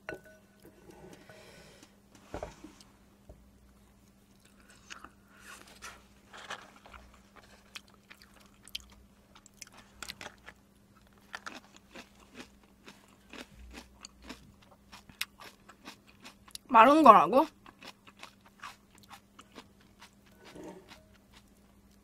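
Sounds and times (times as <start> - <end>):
person chewing noodles: 4.0 - 5.4, 6.7 - 16.6, 17.6 - 22.0.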